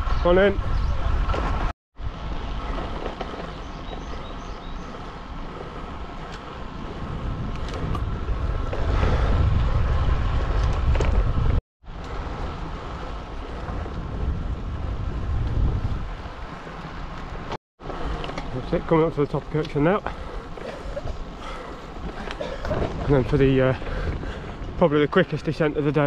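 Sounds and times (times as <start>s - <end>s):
wind buffeting microphone: 0.0s - 17.5s, 20.1s - 26.0s.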